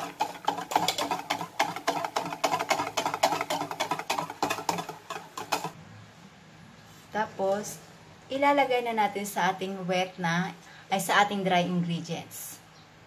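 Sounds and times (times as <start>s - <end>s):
whisk beating batter in metal bowl: 0.0s - 5.8s.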